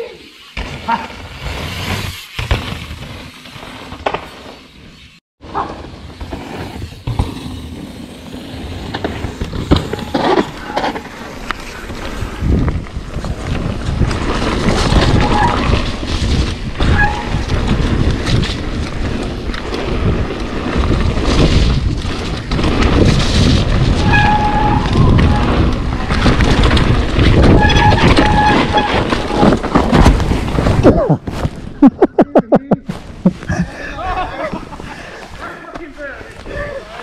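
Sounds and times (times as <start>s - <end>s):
bike rattling over bumps: 0.4s - 31.8s
tyres rolling over dirt: 5.4s - 31.8s.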